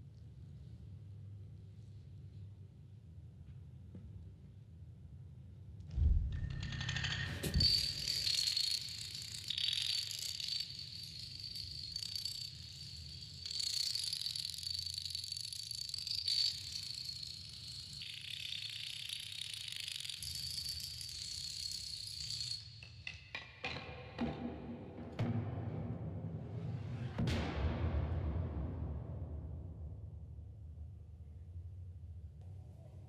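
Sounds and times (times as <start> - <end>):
low thump: 6.0 - 6.6
dominoes clattering: 6.8 - 23.0.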